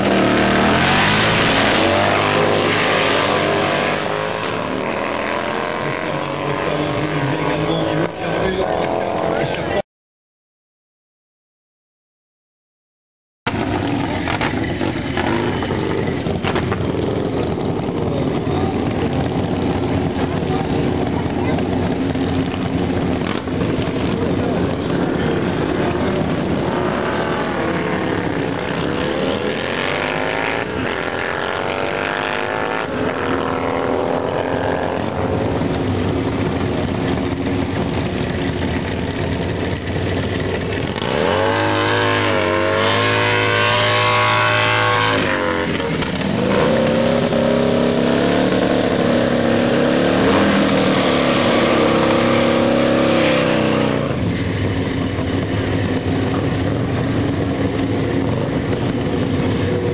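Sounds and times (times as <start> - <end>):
motorcycle engines revving: 0.0 - 9.8, 13.5 - 59.9
motorcycle tyre burnout: 0.0 - 9.8, 13.5 - 59.9.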